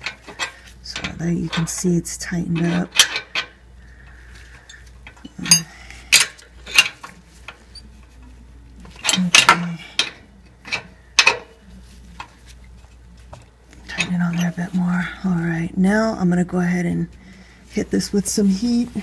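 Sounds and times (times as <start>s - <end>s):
metal tools clinking: 4.6s - 7.9s, 8.9s - 11.5s, 13.8s - 14.6s.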